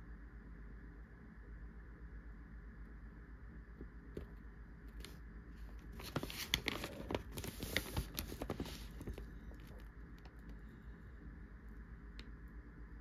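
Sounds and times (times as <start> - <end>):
newspaper pages rustling: 5.8 - 9.8.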